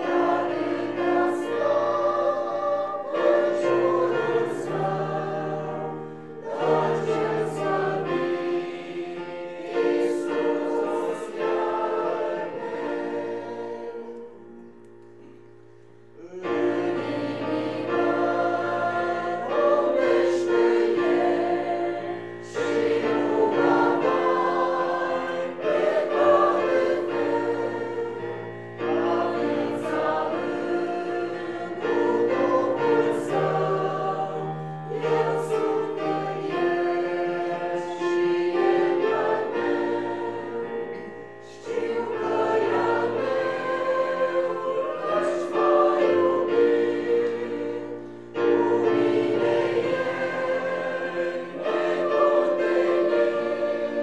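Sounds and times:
choir singing a hymn: 0.0s - 54.0s.

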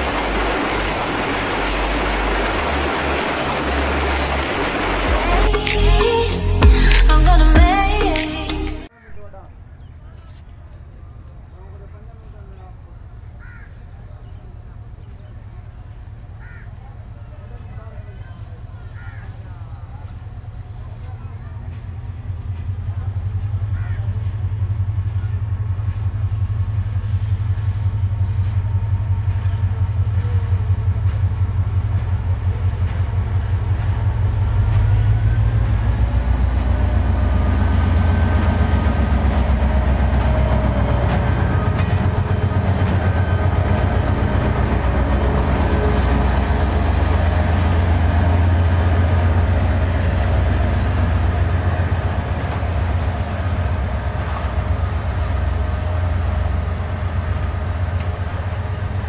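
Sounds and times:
high whine: 0.0s - 9.4s, 22.2s - 59.0s
locomotive engine rumble: 0.0s - 59.0s.

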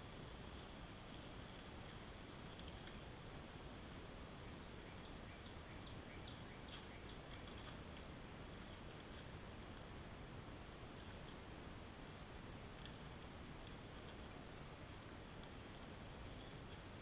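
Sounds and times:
steady hiss: 0.0s - 17.0s
bird chirping: 4.4s - 7.6s, 15.8s - 17.0s.

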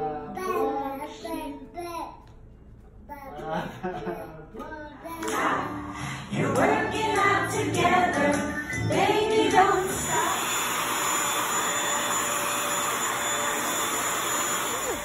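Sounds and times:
person singing: 5.1s - 10.6s
vacuum cleaner running: 9.6s - 15.0s.

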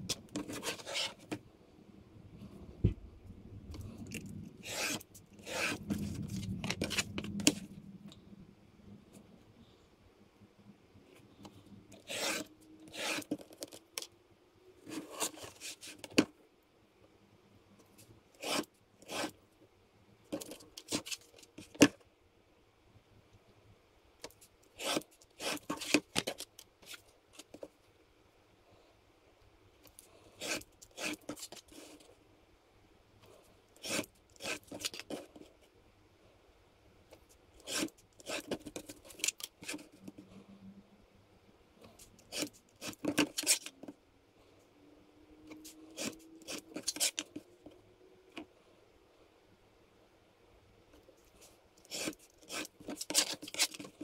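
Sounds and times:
craft knife scraping along ruler: 0.4s - 1.3s, 4.6s - 6.0s, 12.0s - 13.5s, 18.4s - 19.4s, 24.8s - 26.0s, 30.4s - 31.9s, 33.8s - 35.1s, 37.6s - 39.8s, 45.6s - 47.4s, 51.8s - 54.0s.

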